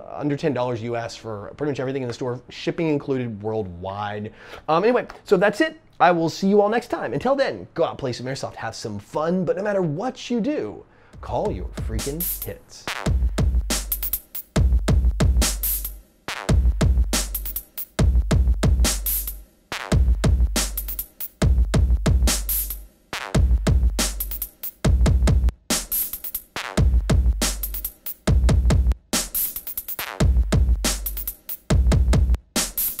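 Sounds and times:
deep bass notes: 11.2 - 14.0, 16.5 - 17.4, 21.4 - 22.8, 23.4 - 24.2, 24.9 - 25.5, 26.8 - 27.7
electronic music with drum beat: 11.2 - 33.0.

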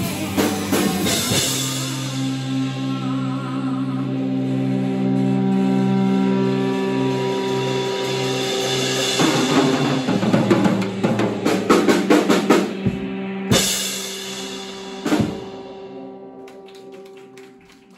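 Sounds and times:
rapid drum fill: 0.0 - 2.2, 8.4 - 16.0
heavy drum accent hits: 8.6 - 16.1.

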